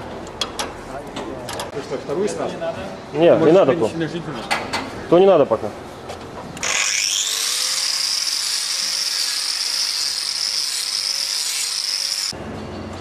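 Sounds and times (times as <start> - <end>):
angle grinder whining: 6.6 - 12.4.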